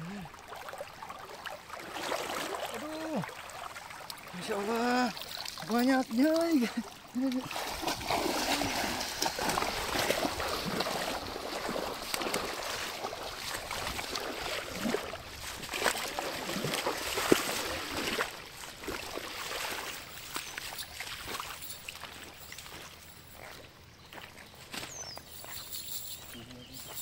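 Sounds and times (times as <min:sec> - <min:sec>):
flowing river water: 0:00.0 - 0:27.0
footsteps splashing in river: 0:00.0 - 0:27.0.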